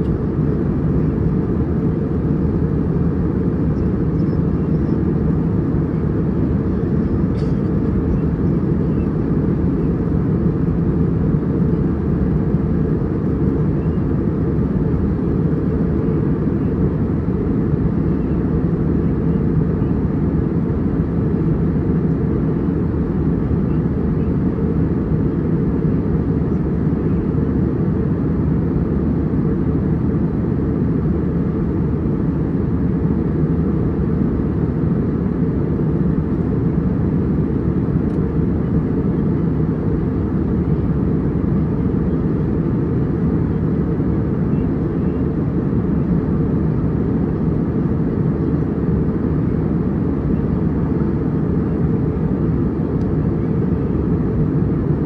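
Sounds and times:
airliner cabin engine rumble: 0:00.0 - 0:55.0.

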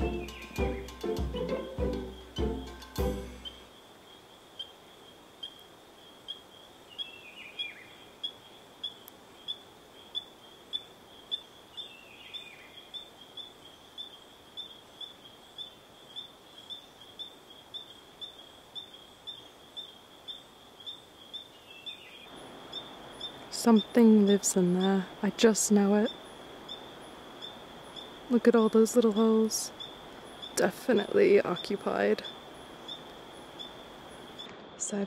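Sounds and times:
faint background hiss: 0:00.0 - 0:35.0.

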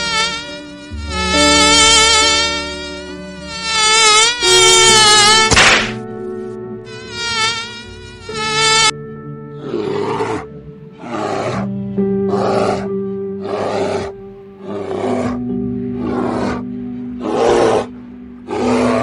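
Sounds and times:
wavering buzzing whine: 0:00.0 - 0:09.4
background music with held notes: 0:00.0 - 0:19.0
bears growling: 0:09.5 - 0:19.0.

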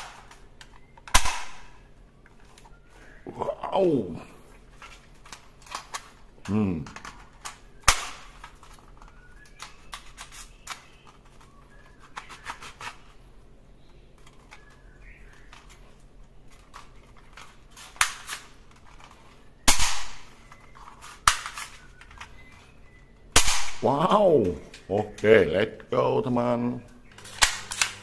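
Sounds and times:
sharp plastic snaps: 0:00.0 - 0:02.7, 0:04.8 - 0:13.1, 0:14.1 - 0:22.6, 0:23.2 - 0:25.9.

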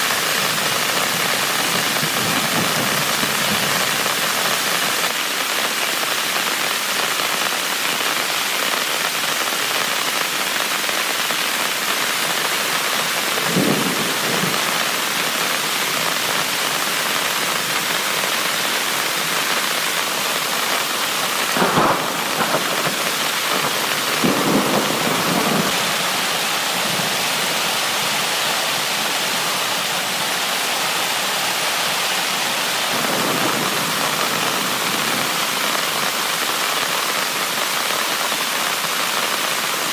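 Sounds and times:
heavy rain on a tent: 0:00.0 - 0:39.9
thunder rumbles: 0:01.0 - 0:04.0, 0:13.4 - 0:14.9, 0:21.5 - 0:28.1, 0:32.6 - 0:35.6.

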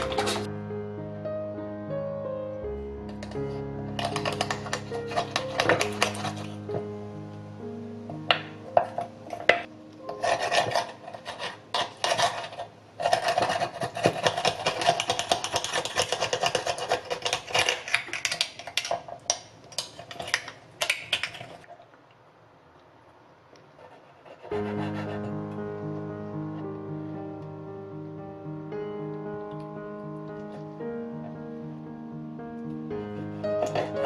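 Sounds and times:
metal spoon scraping shell: 0:00.0 - 0:00.5, 0:04.0 - 0:06.6, 0:08.8 - 0:19.1, 0:33.6 - 0:34.0.

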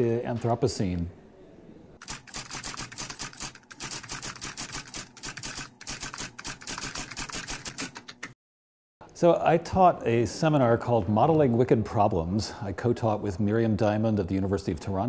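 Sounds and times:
typewriter keys clacking: 0:02.0 - 0:08.4.

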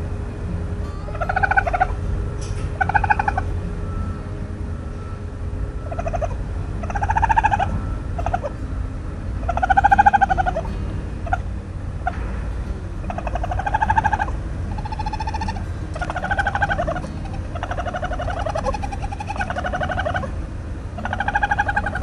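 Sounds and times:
low rumble: 0:00.0 - 0:22.0
raccoon trilling cries: 0:01.0 - 0:03.5, 0:05.8 - 0:08.6, 0:09.4 - 0:12.2, 0:13.0 - 0:22.0.

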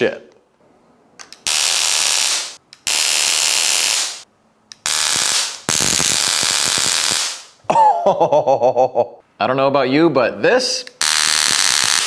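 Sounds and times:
stun gun arcing crackling buzz: 0:01.4 - 0:07.6, 0:11.0 - 0:12.0.

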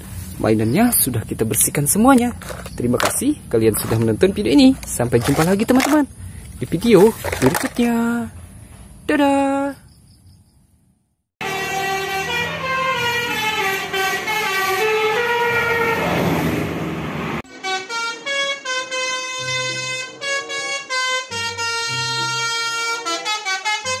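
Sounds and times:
multi-tone air horn: 0:11.4 - 0:16.5, 0:17.5 - 0:24.0
vehicle musical horn: 0:11.4 - 0:16.6, 0:17.5 - 0:24.0
passing vehicle rush: 0:11.4 - 0:17.5.

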